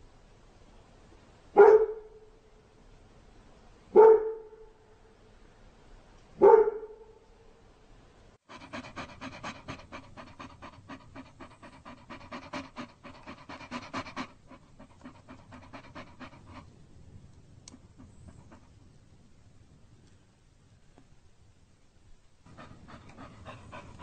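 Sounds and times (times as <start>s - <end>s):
dog panting: 8.4s - 16.7s, 17.7s - 19.0s, 22.5s - 24.0s.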